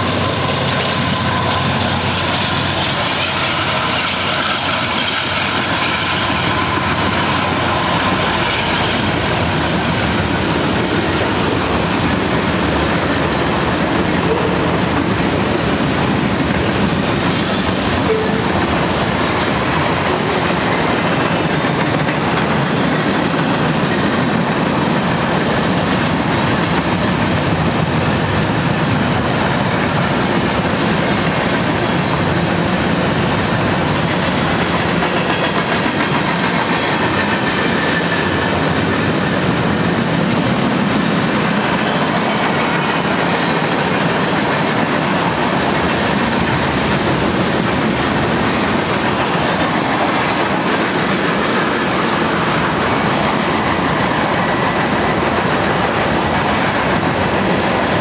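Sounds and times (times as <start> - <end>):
clickety-clack over rail joints: 0.0 - 58.0
diesel locomotive engine: 0.0 - 58.0
steel wheels on rails: 0.0 - 58.0.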